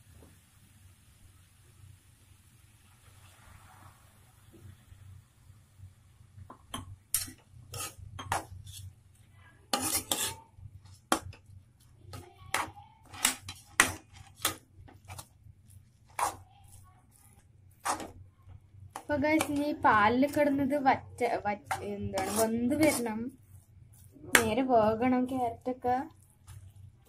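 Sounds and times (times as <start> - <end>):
metal spoon scraping a pan: 6.7 - 9.0, 9.7 - 11.5, 12.1 - 18.2, 18.9 - 20.6, 21.3 - 26.7.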